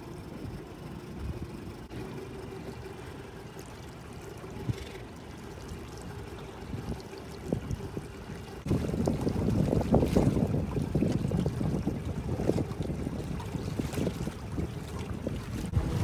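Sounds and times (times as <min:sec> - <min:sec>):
faint boat engine hum: 0:00.0 - 0:16.0
water lapping and trickling: 0:00.0 - 0:16.0.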